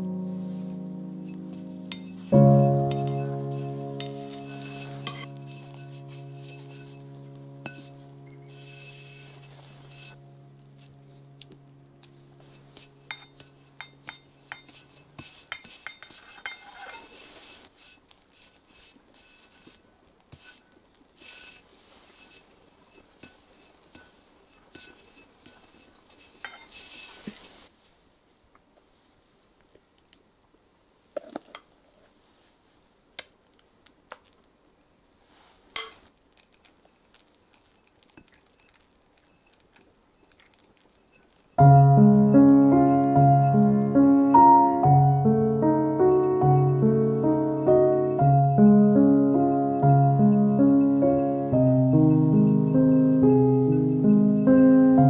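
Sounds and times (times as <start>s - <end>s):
held music note: 0.0s - 14.8s, 41.6s - 55.0s
metal palette knife clinking: 1.9s - 7.0s, 7.6s - 10.2s, 12.4s - 17.1s
knife scraping cream: 12.5s - 22.5s, 23.2s - 27.4s.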